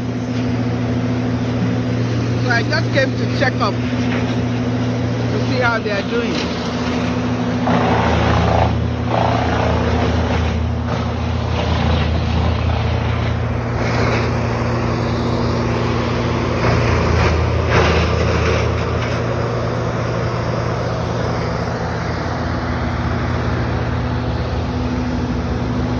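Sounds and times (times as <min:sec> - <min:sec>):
engine humming steadily: 0:00.0 - 0:25.9.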